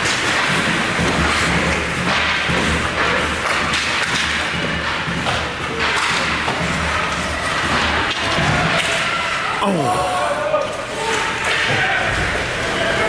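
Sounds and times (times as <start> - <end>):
skates scraping ice: 0.0 - 9.0.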